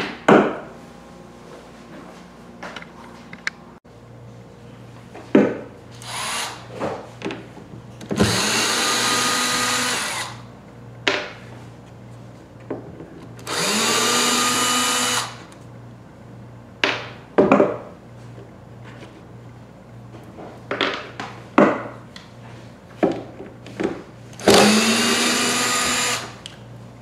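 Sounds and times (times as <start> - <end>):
cordless drill motor spinning: 6.0 - 6.7, 8.1 - 10.4, 13.4 - 15.6, 24.4 - 26.5.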